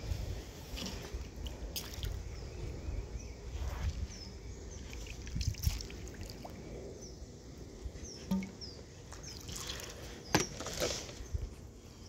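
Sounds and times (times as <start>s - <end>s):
water trickling and dripping: 4.8s - 6.7s, 8.3s - 10.0s
bird chirping: 8.0s - 10.6s.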